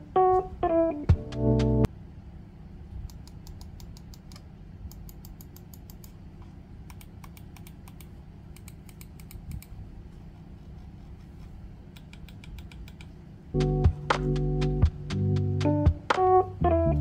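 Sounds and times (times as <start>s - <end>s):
computer mouse clicking: 3.0s - 6.2s, 6.8s - 9.8s, 11.9s - 13.2s.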